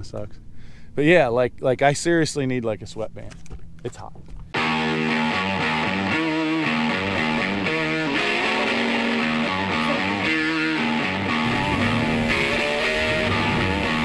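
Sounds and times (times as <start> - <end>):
guitar instrumental music: 4.4 - 14.0.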